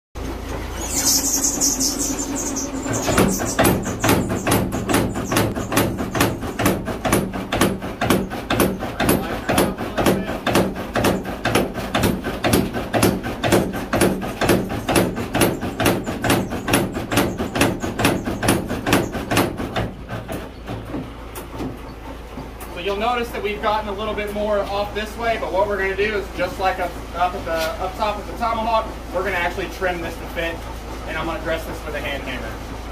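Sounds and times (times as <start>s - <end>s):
steady low hum: 0.2s - 32.9s
power hammer pounding on anvil: 2.9s - 21.8s.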